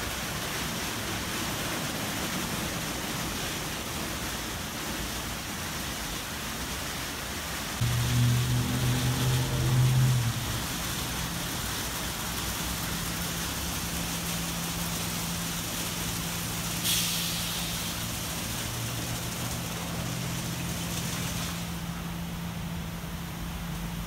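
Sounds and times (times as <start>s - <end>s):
car wash machine hum: 0.0s - 24.0s
constant hiss: 0.0s - 24.0s
short sharp hiss: 16.7s - 18.1s.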